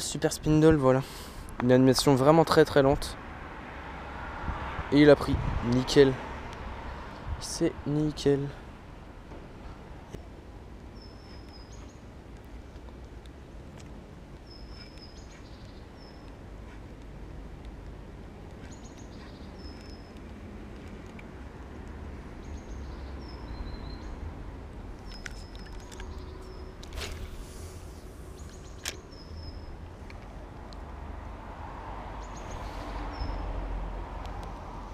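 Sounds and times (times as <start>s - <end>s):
sharp clicks: 24.9s - 27.2s
swish: 27.0s - 28.8s.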